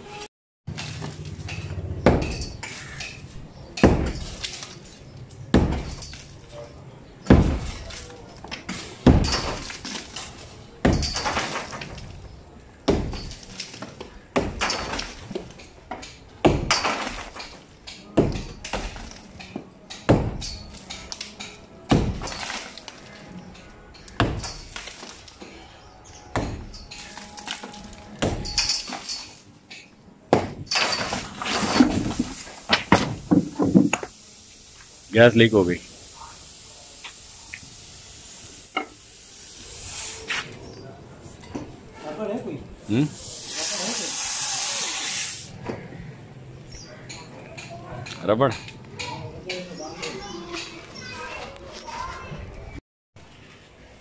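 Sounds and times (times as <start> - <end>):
masonry cracking and clattering: 0.7 - 34.1
sledgehammer striking wall: 2.0 - 2.6, 3.8 - 4.4, 5.5 - 6.0, 7.3 - 7.9, 9.0 - 9.8, 10.8 - 11.9, 12.9 - 13.4, 14.3 - 15.3, 16.4 - 17.5, 20.1 - 20.6, 21.9 - 22.6, 24.2 - 24.8, 30.3 - 34.0.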